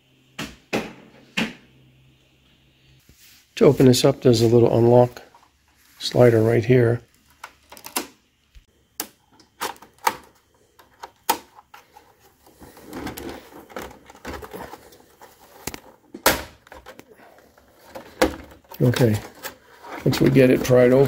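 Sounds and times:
rustling handling noise: 3.0s - 8.0s, 9.5s - 21.0s.

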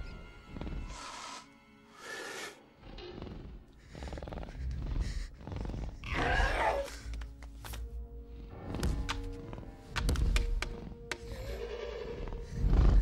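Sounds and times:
creature snorts: 0.6s - 6.9s
rattling growl: 2.8s - 6.8s.

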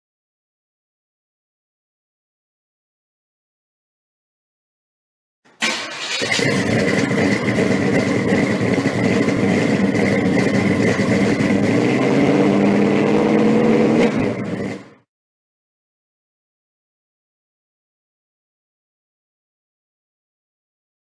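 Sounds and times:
large car engine running: 5.6s - 15.0s.

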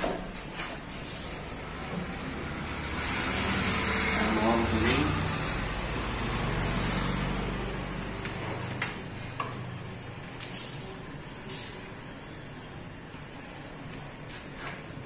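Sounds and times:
engine running low hum: 1.0s - 10.3s.

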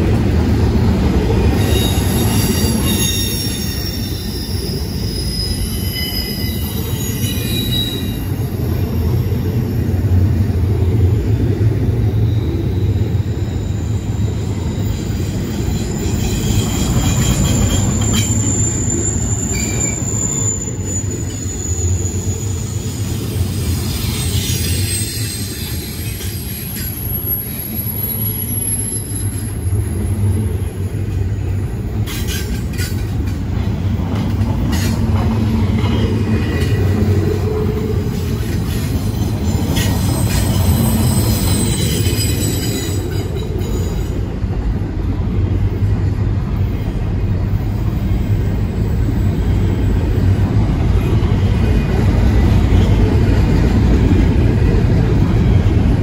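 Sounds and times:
train wheels rumbling on rail: 0.0s - 56.0s
high-pitched wheel squeals: 1.5s - 8.6s, 12.2s - 29.8s, 35.8s - 44.1s.

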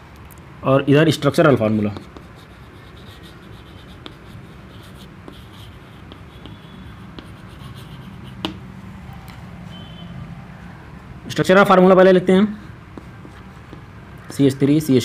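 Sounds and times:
chalk tapping board: 1.8s - 8.6s, 12.9s - 14.4s
chalk scratching on chalkboard: 1.9s - 8.6s, 12.6s - 14.4s.

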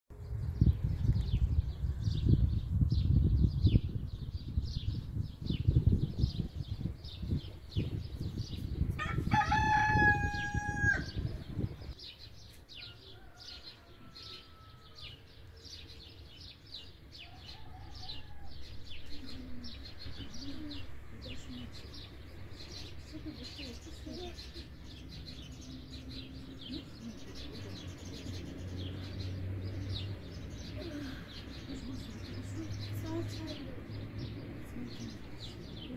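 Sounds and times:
small birds chirping: 0.1s - 35.9s
rooster crowing: 9.0s - 11.2s, 12.8s - 15.2s, 17.2s - 18.6s.

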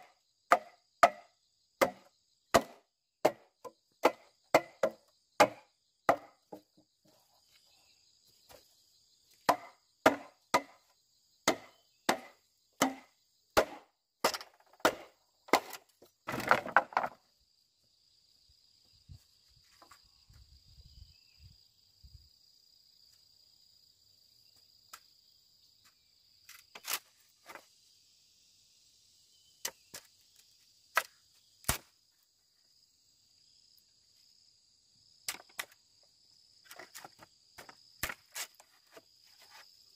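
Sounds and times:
blade chopping into wood: 0.5s - 6.3s, 9.4s - 10.8s, 11.4s - 17.2s, 30.9s - 31.9s, 36.7s - 38.7s.

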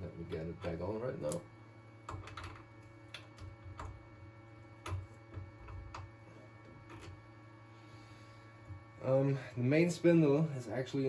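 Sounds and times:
steady low hum: 0.0s - 11.0s
metal connectors clicking: 0.2s - 1.4s, 2.0s - 4.0s, 4.8s - 6.1s.

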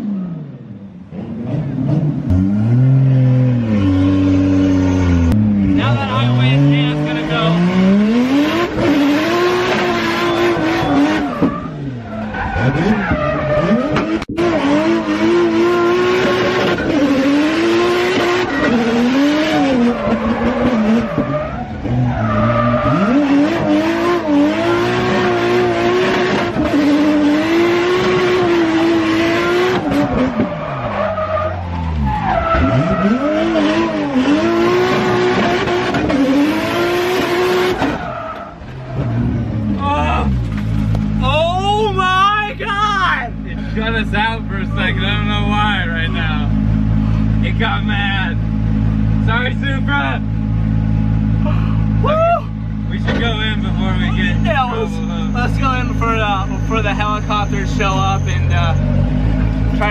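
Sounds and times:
race car engine revving: 0.0s - 41.3s
tyre squeal: 9.7s - 14.2s, 18.2s - 36.4s, 37.2s - 40.4s, 53.6s - 59.0s.

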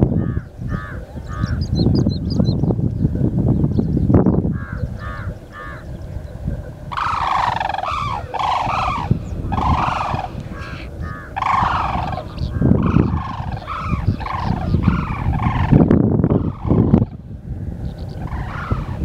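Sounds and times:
cranes trumpeting: 6.9s - 17.3s, 18.2s - 19.0s.

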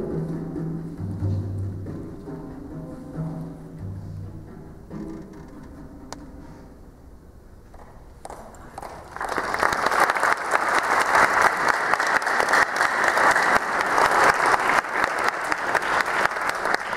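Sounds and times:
audience applause: 8.3s - 16.9s.

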